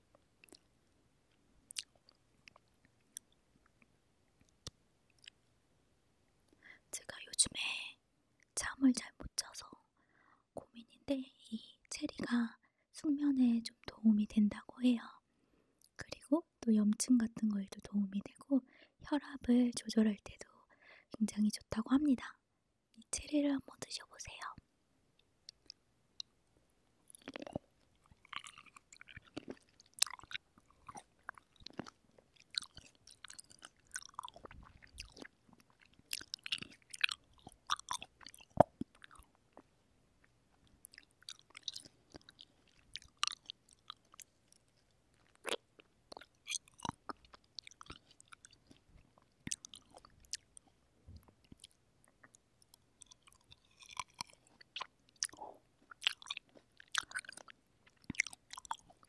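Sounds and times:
wet chewing mouth sounds: 0.4s - 0.7s, 1.7s - 3.4s, 25.5s - 26.3s, 27.1s - 59.0s.

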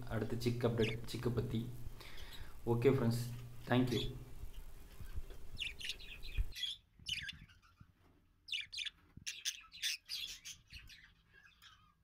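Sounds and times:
budgerigars chirping: 0.5s - 1.3s, 3.9s - 7.9s, 8.5s - 12.0s.

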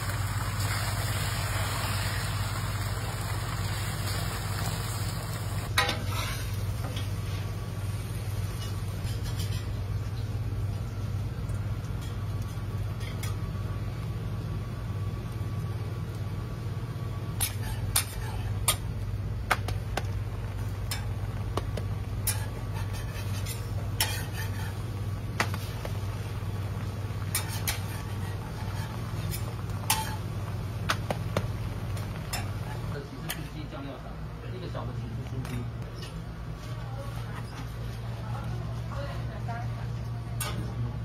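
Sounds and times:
faint sizzle: 0.0s - 41.0s
metal spatula scraping griddle: 5.8s - 6.6s, 17.4s - 18.8s, 22.2s - 24.9s, 27.3s - 30.3s.

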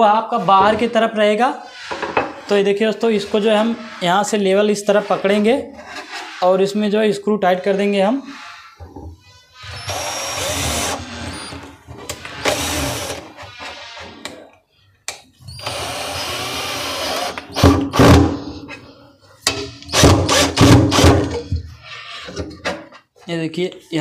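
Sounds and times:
cordless drill driving screws: 9.6s - 11.5s, 12.2s - 13.3s, 15.6s - 17.7s.

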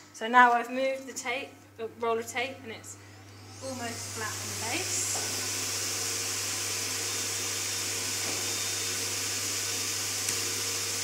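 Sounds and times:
vacuum motor hiss and hum: 2.9s - 11.0s.

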